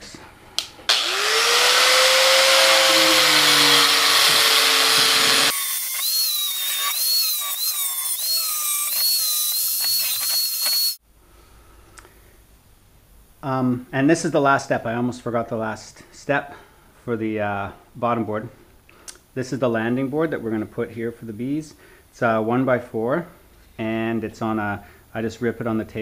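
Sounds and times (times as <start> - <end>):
angle grinder cutting wire: 0.9 - 11.0.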